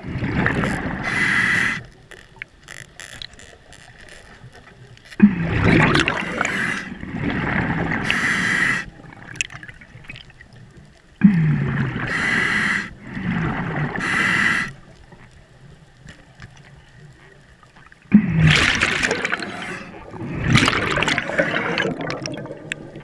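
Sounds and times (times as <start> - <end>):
regulator air hiss: 1.0 - 1.9, 8.0 - 8.9, 12.1 - 13.0, 14.0 - 14.8.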